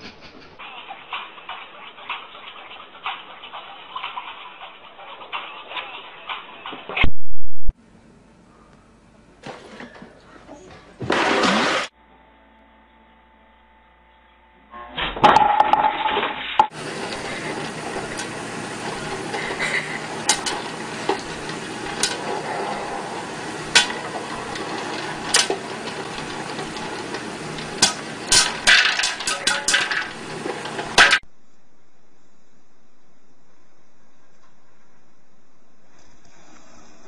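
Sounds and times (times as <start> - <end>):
knocks and clatter: 15.2 - 31.2
popcorn popping: 15.2 - 31.2.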